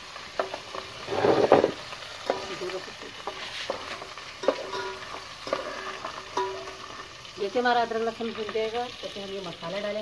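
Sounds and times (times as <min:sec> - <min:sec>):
food sizzling in hot oil: 0:00.0 - 0:10.0
metal spoon clinking pot: 0:03.2 - 0:07.1.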